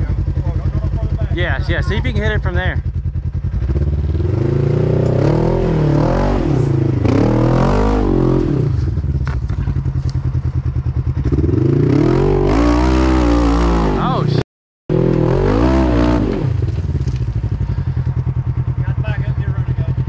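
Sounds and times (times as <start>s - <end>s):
engine idling: 0.0s - 5.0s, 8.6s - 11.8s, 16.4s - 20.0s
off-road vehicle engine revving: 0.0s - 20.0s.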